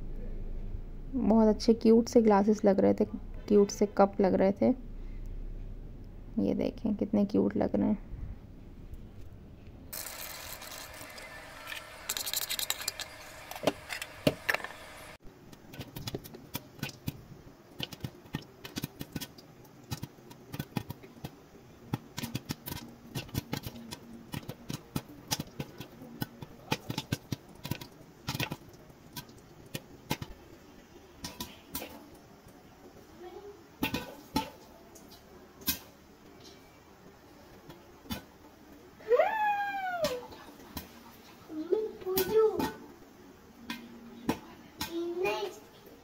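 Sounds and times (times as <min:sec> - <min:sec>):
steady hiss: 0:09.9 - 0:15.2
popcorn popping in a pot: 0:09.9 - 0:33.0, 0:33.7 - 0:36.0, 0:37.6 - 0:38.7.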